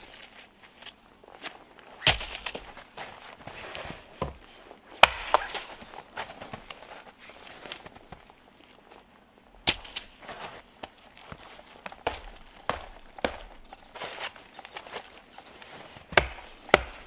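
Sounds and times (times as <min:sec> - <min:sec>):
footsteps crunching in snow: 0:00.0 - 0:09.1, 0:09.8 - 0:17.0
dead branches snapping: 0:05.0 - 0:05.9, 0:09.6 - 0:10.2, 0:16.0 - 0:17.0.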